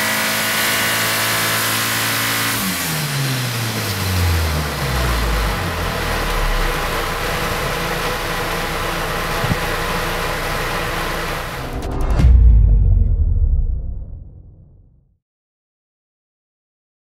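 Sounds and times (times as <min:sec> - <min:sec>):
car engine running: 0:01.0 - 0:12.8
loud rushing noise: 0:11.3 - 0:14.9.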